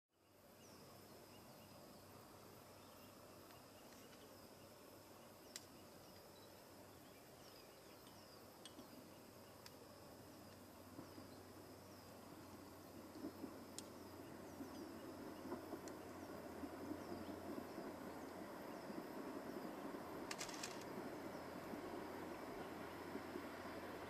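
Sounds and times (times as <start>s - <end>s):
insect chirps: 0.1s - 24.0s
insects trilling: 0.2s - 24.0s
sharp clicks: 20.3s - 20.9s.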